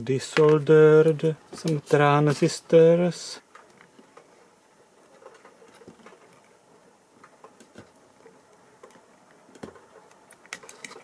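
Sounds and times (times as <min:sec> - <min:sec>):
small clicks and taps: 0:07.2 - 0:11.0.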